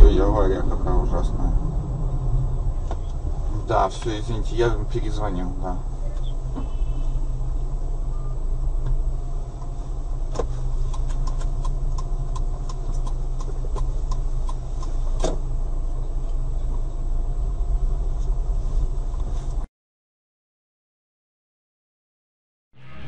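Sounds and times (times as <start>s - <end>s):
car engine and road rumble: 0.0s - 19.7s, 22.8s - 23.0s
light regular ticking: 8.8s - 15.3s.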